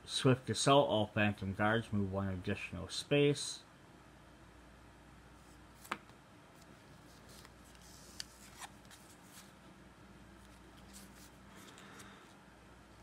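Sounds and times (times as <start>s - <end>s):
cards sliding and clicking: 5.8s - 9.5s, 10.4s - 12.4s.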